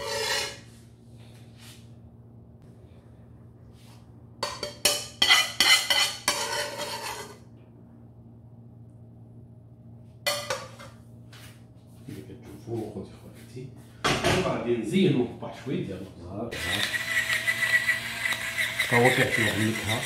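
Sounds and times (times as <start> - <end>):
metal spoon scraping ceramic plate: 0.0 - 0.7, 4.4 - 7.4
low steady hum: 0.0 - 20.0.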